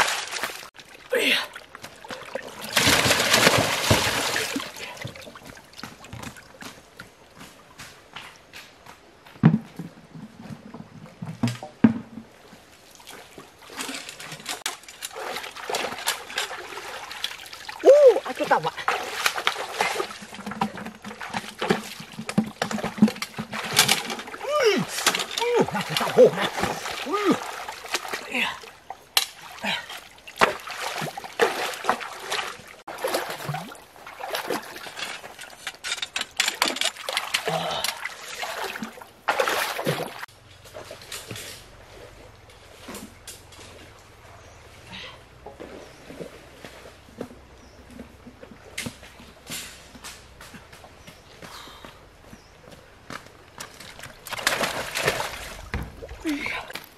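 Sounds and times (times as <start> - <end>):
water splashing and sloshing: 0.0 - 56.9
dull thumps: 54.4 - 56.4.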